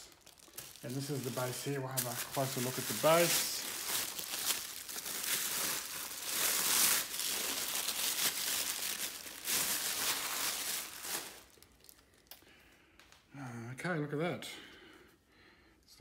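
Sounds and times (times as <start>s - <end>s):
plastic bag crinkling: 0.0s - 12.4s.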